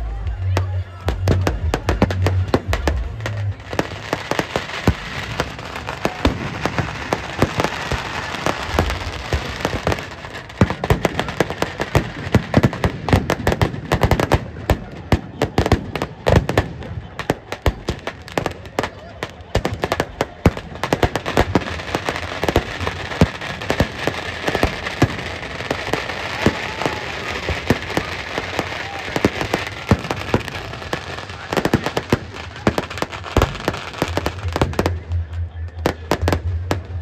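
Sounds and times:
firecrackers cracking and banging: 0:00.3 - 0:37.0.

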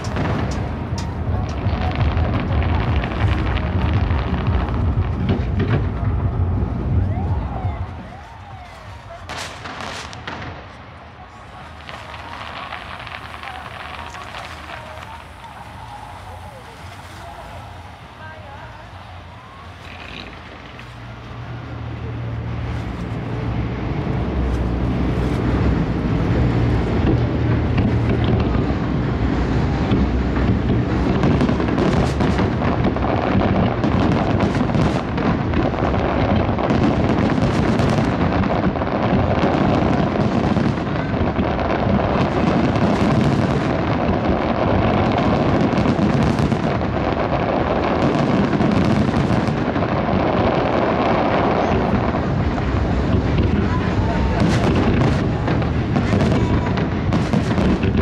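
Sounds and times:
fireworks bursting and crackling: 0:00.0 - 0:58.0.

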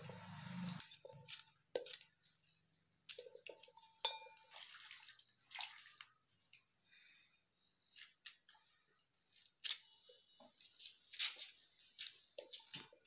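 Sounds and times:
metallic ring on wok: 0:03.2 - 0:04.4.

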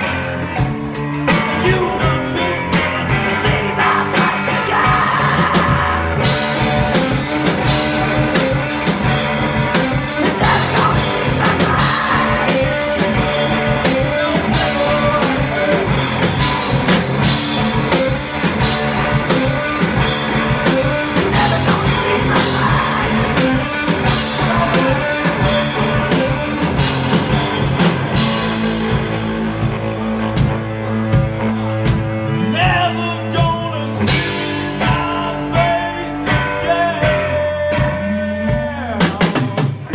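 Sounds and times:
live rock band playing: 0:00.0 - 0:39.9
person singing: 0:01.3 - 0:08.9, 0:09.6 - 0:16.9, 0:19.2 - 0:26.8, 0:32.3 - 0:39.9.

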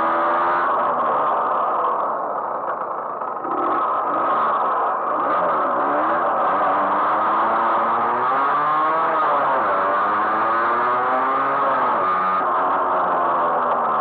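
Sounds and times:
moped engine running: 0:00.0 - 0:08.0.

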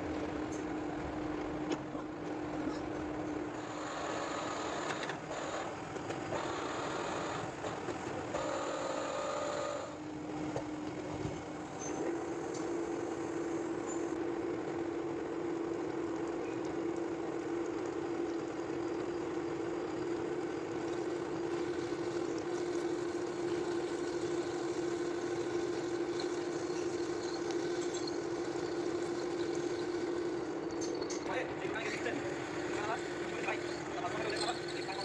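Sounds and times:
metal lathe running: 0:00.1 - 0:10.9, 0:17.2 - 0:35.0
drill boring into metal: 0:21.5 - 0:35.0.

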